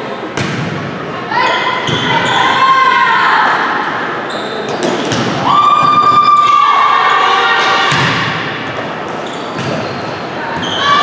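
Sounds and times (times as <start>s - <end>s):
people cheering: 5.4s - 8.1s.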